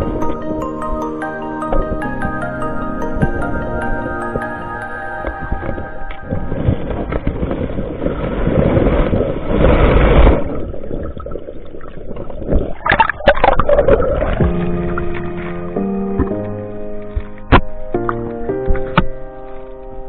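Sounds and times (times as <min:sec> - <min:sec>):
background music: 0:00.0 - 0:07.3, 0:14.4 - 0:20.0
water splashing and sloshing: 0:00.0 - 0:20.0.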